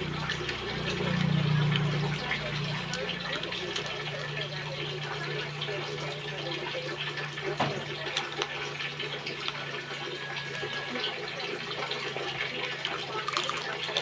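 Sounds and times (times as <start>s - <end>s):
crab shell cracking: 13.2s - 14.0s.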